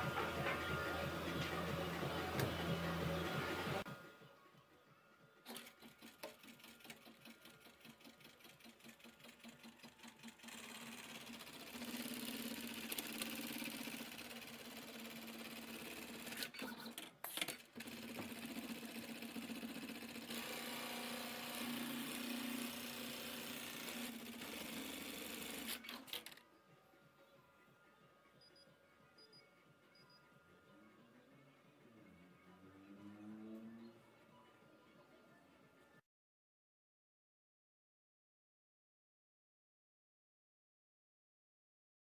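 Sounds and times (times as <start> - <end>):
sewing machine stitching: 5.4 - 26.4.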